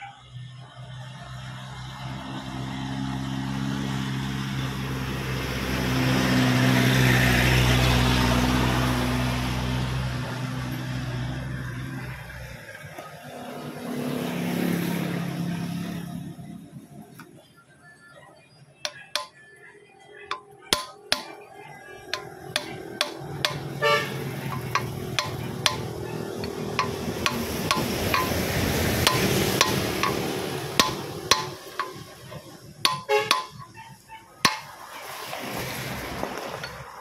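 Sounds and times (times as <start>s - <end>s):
hammer tapping on steel: 18.9s - 19.4s, 20.3s - 21.5s, 22.1s - 33.6s, 34.5s - 34.7s
broad rushing noise: 22.1s - 33.6s.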